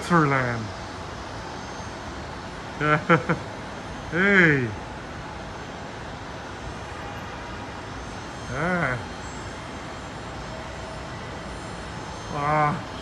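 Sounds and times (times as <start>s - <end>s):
airport background noise: 0.0s - 13.0s
man saying a word: 8.5s - 9.0s.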